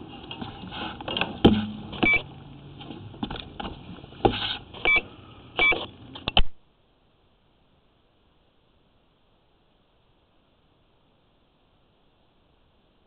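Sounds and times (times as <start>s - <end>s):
short flat beeps: 2.0s - 2.2s, 4.9s - 5.9s.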